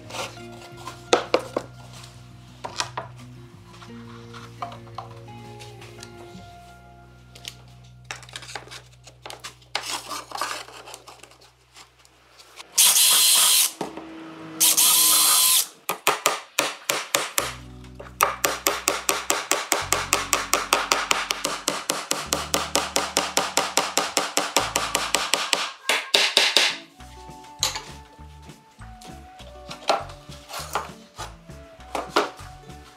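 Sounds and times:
loud bursts of hiss: 0:12.8 - 0:13.8, 0:14.6 - 0:15.7
hammer tapping on wood: 0:18.2 - 0:26.8.

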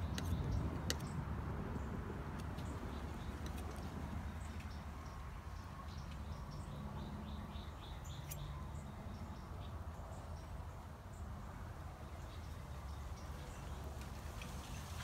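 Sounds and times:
small bird chirping: 0:02.4 - 0:10.6.

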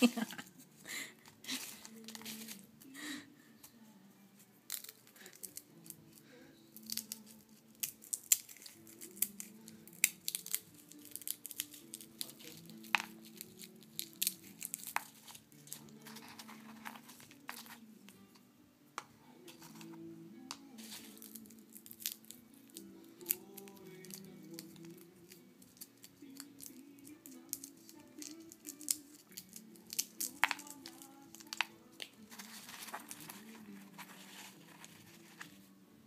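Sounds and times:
nut shells rustling and cracking: 0:04.7 - 0:17.8, 0:20.8 - 0:35.6.

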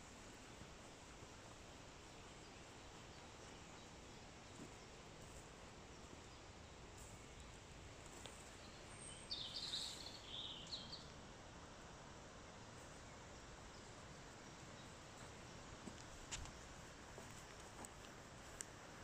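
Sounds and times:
woodland background hiss: 0:00.0 - 0:19.0
bird song: 0:02.1 - 0:11.2.

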